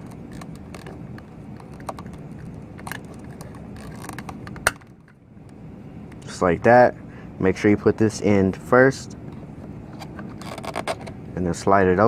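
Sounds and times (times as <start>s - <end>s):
plastic clicks and scrapes: 0.0s - 5.2s, 9.9s - 11.2s
steady low hum: 0.0s - 12.0s.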